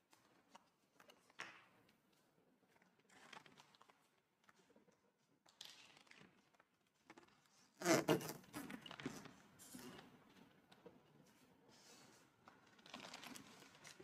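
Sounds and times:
vinyl crinkling: 0:12.3 - 0:14.0.

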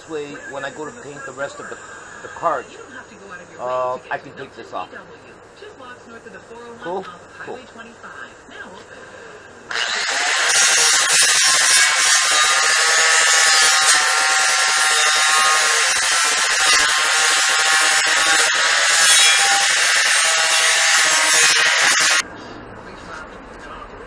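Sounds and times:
angle grinder grinding steel: 0:09.7 - 0:22.2
grinder motor whine: 0:09.7 - 0:22.2.

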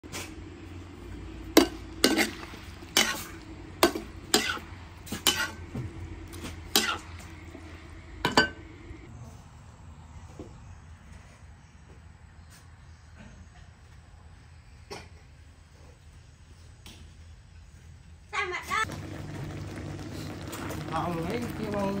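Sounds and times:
metal spatula scraping wok: 0:01.6 - 0:05.7.

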